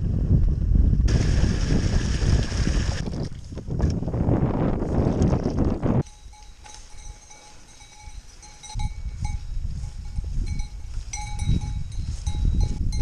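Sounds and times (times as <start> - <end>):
cowbells clanking: 6.0 - 13.0.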